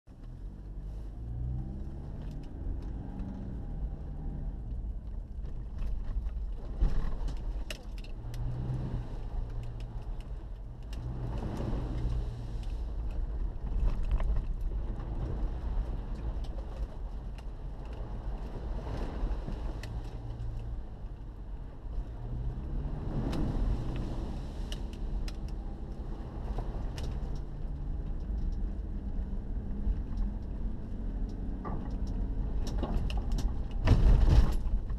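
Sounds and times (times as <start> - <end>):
low road rumble: 0.0 - 34.9
off-road vehicle engine: 0.0 - 34.9
vehicle body rattles and knocks: 31.4 - 34.9.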